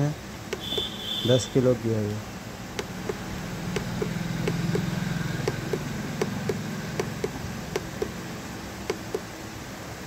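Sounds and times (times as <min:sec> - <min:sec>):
motor humming: 0:02.7 - 0:09.3
light regular clicks: 0:08.8 - 0:09.3.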